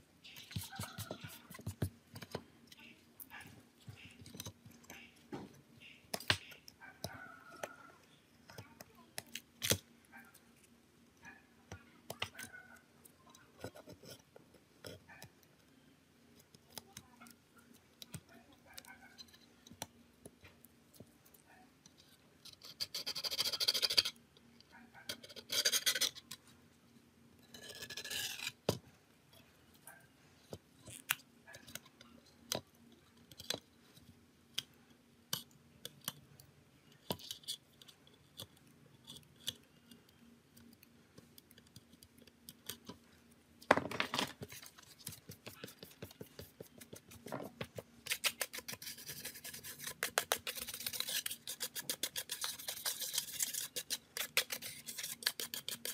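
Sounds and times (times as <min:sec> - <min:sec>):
hand tools scratching and scraping: 0:44.4 - 0:55.9.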